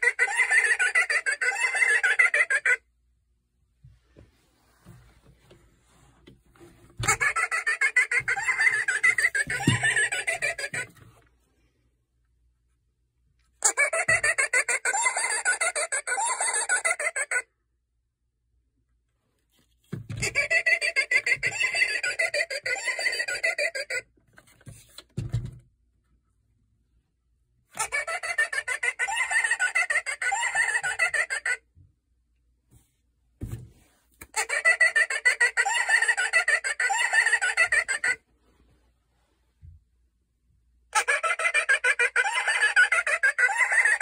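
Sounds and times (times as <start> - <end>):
recorded witch cackling: 0.0 - 3.0, 7.0 - 11.1, 13.6 - 17.6, 20.2 - 24.1, 27.8 - 31.7, 34.2 - 38.3, 40.9 - 44.0.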